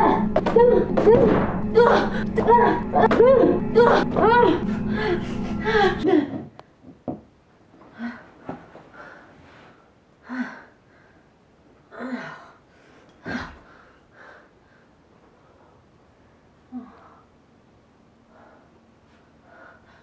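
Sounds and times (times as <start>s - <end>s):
woman groaning and sighing: 0.0s - 6.6s, 11.9s - 12.6s, 16.7s - 17.3s.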